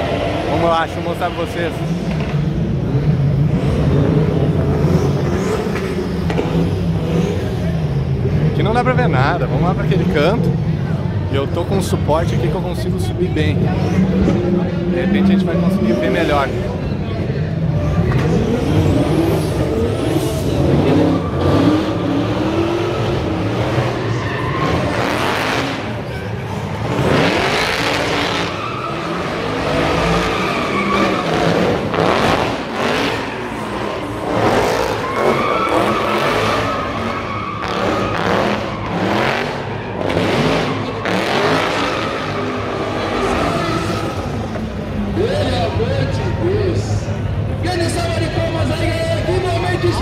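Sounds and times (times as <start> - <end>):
car engine revving: 0.0 - 50.0
tyre squeal: 18.2 - 31.8, 32.9 - 44.5.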